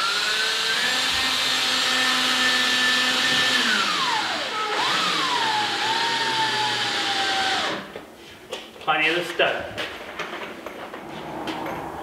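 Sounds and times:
power drill driving screw: 0.0 - 7.9.

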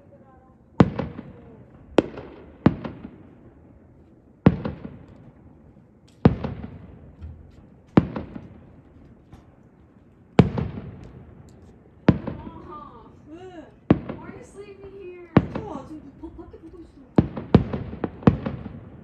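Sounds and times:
firework shells booming: 0.8 - 3.6, 4.4 - 19.0.

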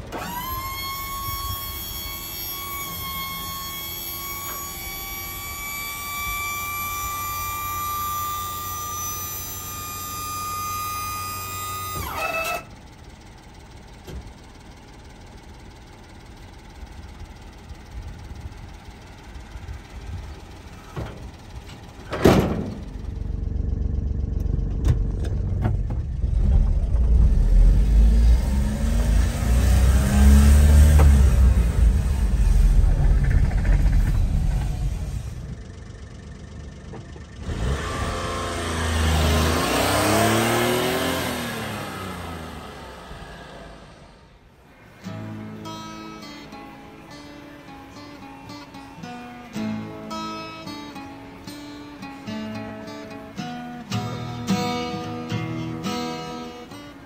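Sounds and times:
small truck engine revving: 0.0 - 12.8, 19.6 - 57.0.

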